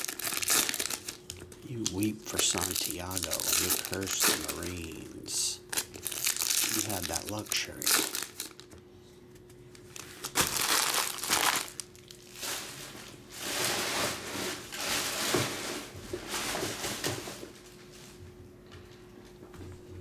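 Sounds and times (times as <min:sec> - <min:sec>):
foil wrapper crinkling and tearing: 0:00.0 - 0:08.8, 0:09.8 - 0:12.8.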